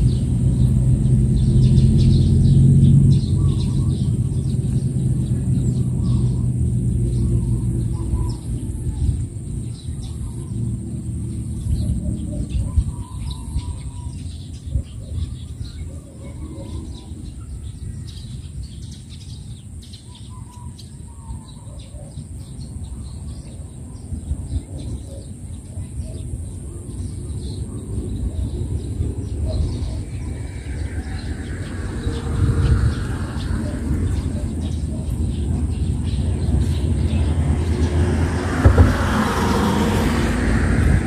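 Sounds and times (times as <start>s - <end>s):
low rumble: 0.0s - 14.1s, 27.8s - 41.0s
small birds chirping: 0.0s - 41.0s.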